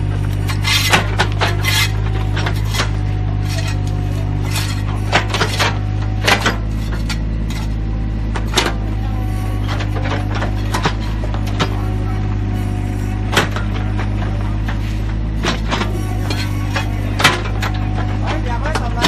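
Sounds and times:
excavator engine running: 0.0s - 19.0s
steel bucket scraping and clanking: 0.4s - 7.8s, 12.6s - 19.0s.

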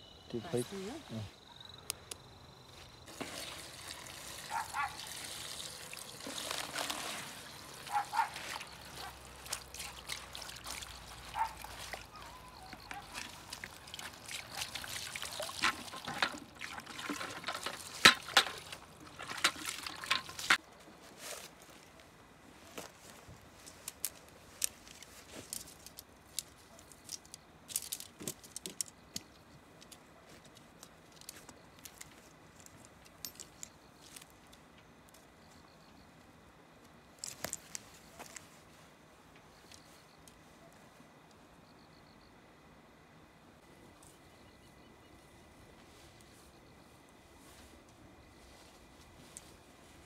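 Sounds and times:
liquid pouring and splashing: 3.1s - 20.6s.

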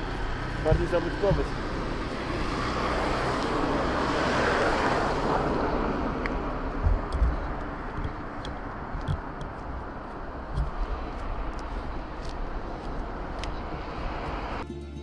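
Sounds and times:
car passing: 0.0s - 14.6s
low thumps on microphone: 6.7s - 8.2s.

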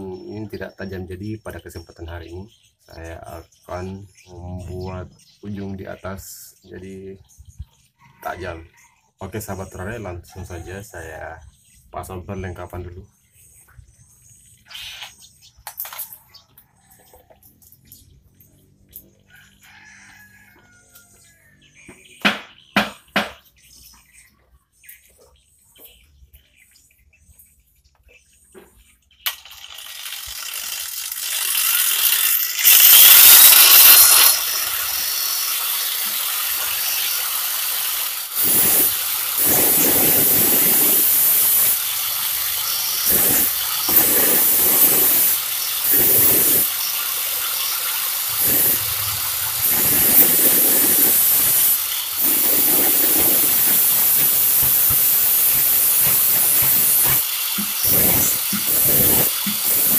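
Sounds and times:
angle grinder grinding steel: 29.3s - 59.9s.

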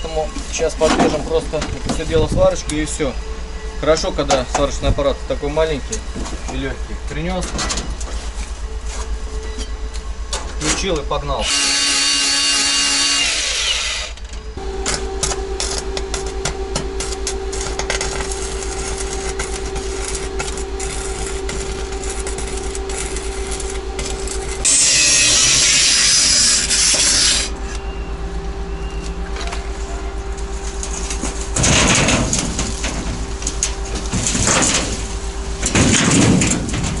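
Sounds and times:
steady welder hum: 0.0s - 37.0s
harsh welding hiss: 11.4s - 14.2s, 14.8s - 27.6s
welding arc crackling: 11.4s - 27.7s, 29.7s - 37.0s.

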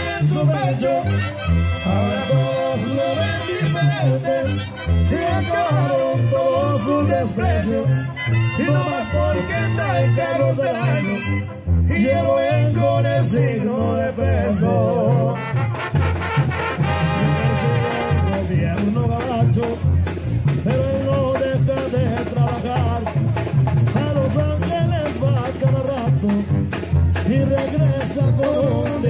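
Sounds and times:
bass and drum beat: 0.0s - 6.0s, 15.0s - 29.0s
brass band playing: 0.0s - 29.0s.

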